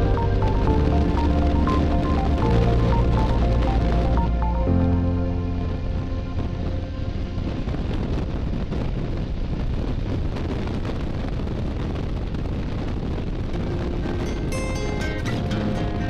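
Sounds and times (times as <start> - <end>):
background music: 0.0 - 8.3, 13.5 - 16.0
wind rushing over microphone: 0.0 - 16.0.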